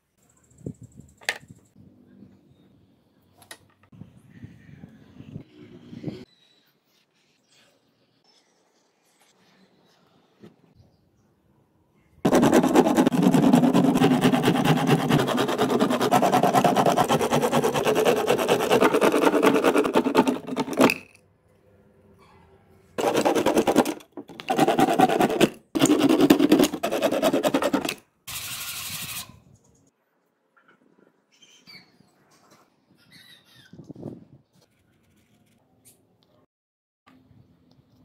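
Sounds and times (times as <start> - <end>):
power tool cutting plastic sheet: 12.3 - 20.9, 23.0 - 29.3.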